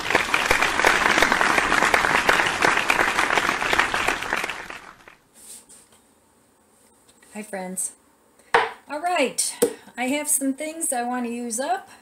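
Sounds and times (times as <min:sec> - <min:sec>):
crowd applauding: 0:00.0 - 0:05.2.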